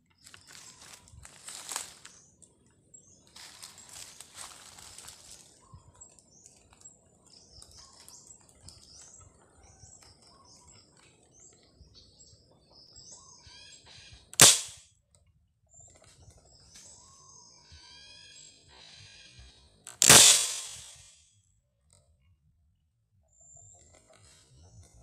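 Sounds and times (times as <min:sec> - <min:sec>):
small birds chirping: 0:00.0 - 0:14.7, 0:15.7 - 0:19.8
marble gun shot: 0:14.4 - 0:14.8, 0:19.9 - 0:21.2.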